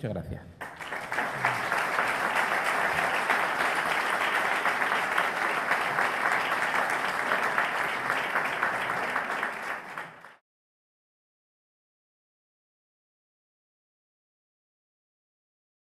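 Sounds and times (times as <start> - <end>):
audience applauding: 0.6 - 10.4.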